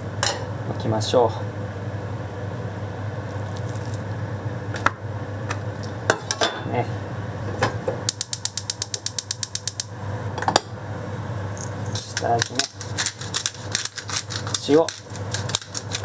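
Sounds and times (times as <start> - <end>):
stove igniter clicking rapidly: 8.1 - 10.0.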